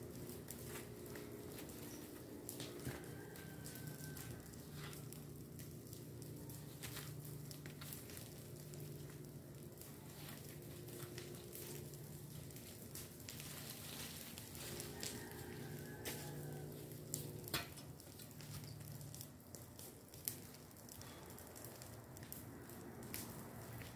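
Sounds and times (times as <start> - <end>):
rake dragging dry leaves: 6.6 - 9.2, 9.8 - 19.0.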